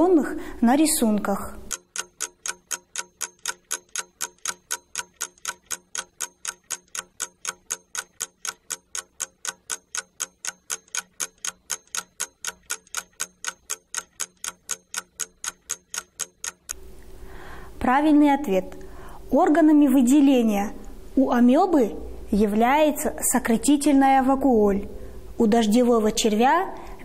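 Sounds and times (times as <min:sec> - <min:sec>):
clock ticking: 0:01.6 - 0:16.8.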